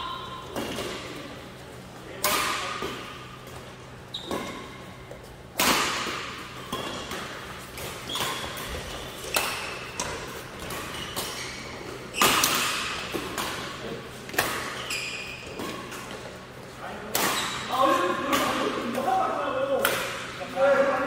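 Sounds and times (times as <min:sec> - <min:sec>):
rackets hitting shuttlecock: 0:02.2 - 0:14.8, 0:17.0 - 0:19.0, 0:19.8 - 0:20.4
shoes squeaking on court: 0:03.0 - 0:05.5, 0:06.2 - 0:16.7.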